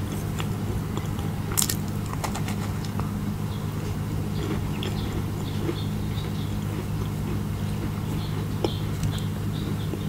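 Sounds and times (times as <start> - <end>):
close chewing with mouth clicks: 0.0 - 10.0
steady low hum: 0.0 - 10.0.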